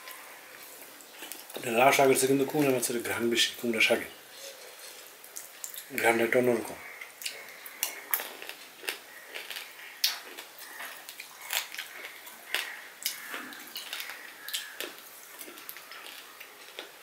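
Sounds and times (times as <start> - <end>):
chewing with wet mouth clicks: 7.0 - 17.0.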